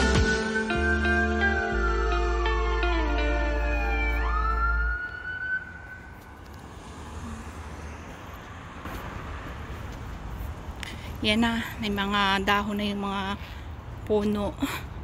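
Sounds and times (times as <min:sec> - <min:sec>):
background music: 0:00.0 - 0:05.0
siren tone rising in pitch: 0:00.0 - 0:06.4
street traffic noise: 0:00.0 - 0:15.0.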